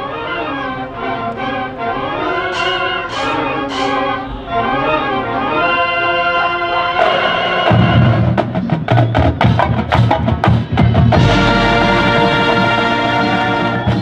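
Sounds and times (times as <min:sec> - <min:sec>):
marching band wind chord: 0:00.0 - 0:14.0
drums and percussion strikes: 0:07.0 - 0:14.0.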